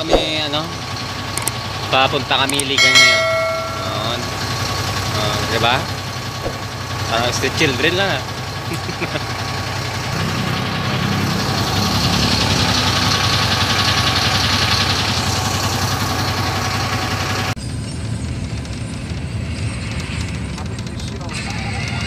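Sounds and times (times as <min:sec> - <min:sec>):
bus engine running: 0:00.0 - 0:22.0.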